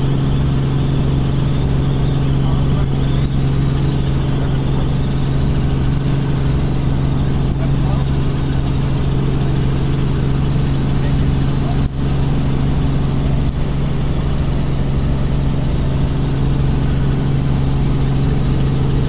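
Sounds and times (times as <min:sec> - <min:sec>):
helicopter engine and rotor drone: 0:00.0 - 0:19.0.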